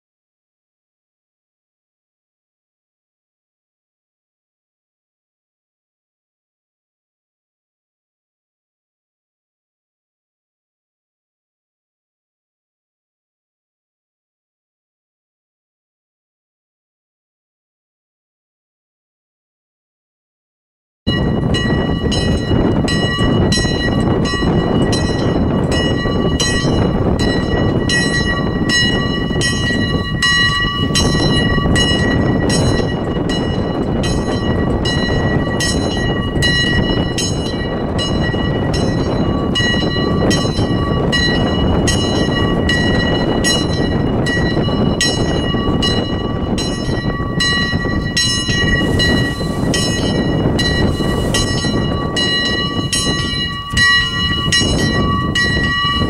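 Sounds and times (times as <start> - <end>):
high-pitched bell striking: 21.1 - 56.0
lower bells ringing: 21.1 - 56.0.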